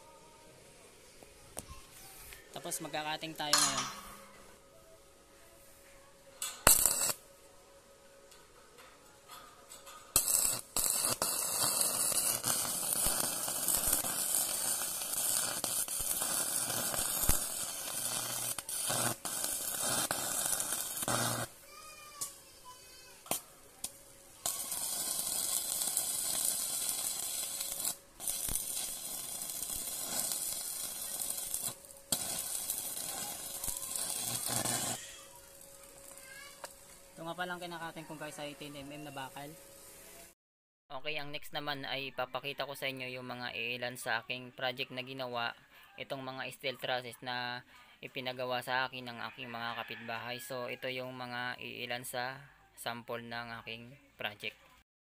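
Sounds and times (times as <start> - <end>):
welding arc crackling hiss: 6.4 - 7.3, 9.9 - 40.4.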